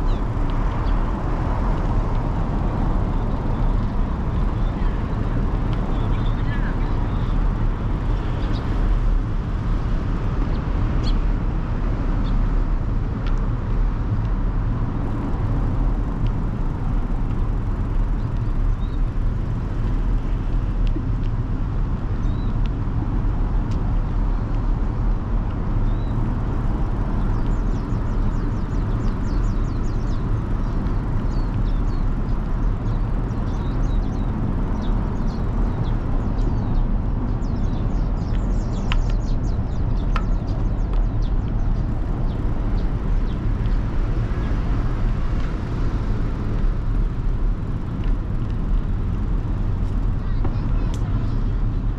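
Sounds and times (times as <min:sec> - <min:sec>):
small birds chirping: 0:00.0 - 0:09.4, 0:15.0 - 0:20.4, 0:22.1 - 0:22.6, 0:25.8 - 0:51.9
low rumble of city traffic: 0:00.0 - 0:51.9.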